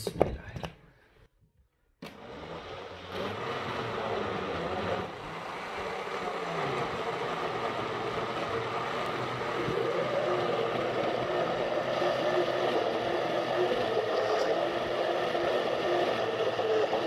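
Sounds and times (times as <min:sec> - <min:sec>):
electric blender running: 0:02.0 - 0:17.0.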